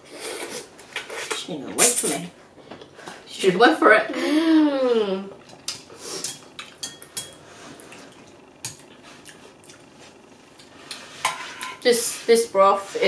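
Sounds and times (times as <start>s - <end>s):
eating noises: 7.7s - 11.0s.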